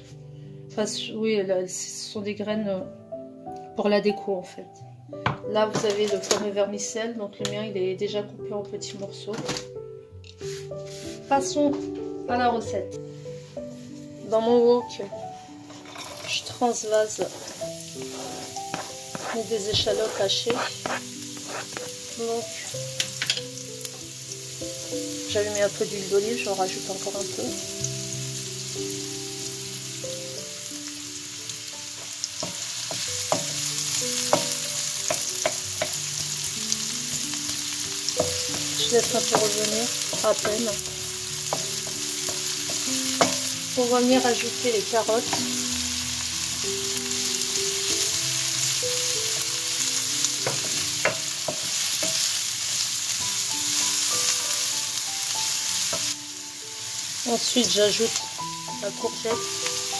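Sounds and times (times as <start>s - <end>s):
shallots sizzling in oil: 5.5s - 8.2s, 10.2s - 59.9s
wooden spatula scraping pan: 10.5s - 11.5s, 15.6s - 22.2s
spatula knocking pan: 18.0s - 22.0s, 32.4s - 33.6s, 34.2s - 36.0s, 38.2s - 43.6s, 50.4s - 52.3s.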